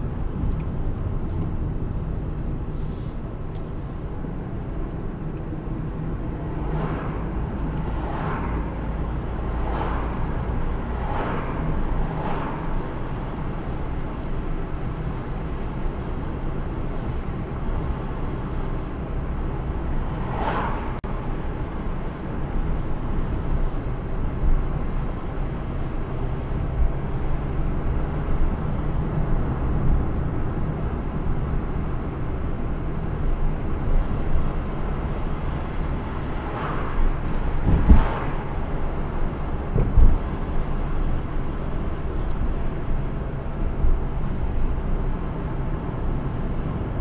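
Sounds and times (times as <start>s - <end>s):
car engine and tyre rumble: 0.0s - 47.0s
low bumps: 35.6s - 40.9s.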